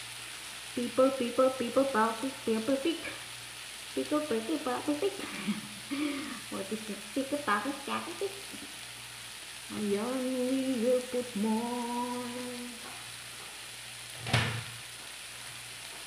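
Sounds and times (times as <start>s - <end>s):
frying sizzle: 0.0s - 16.0s
woman humming: 0.8s - 3.2s, 4.0s - 8.7s, 9.7s - 12.9s.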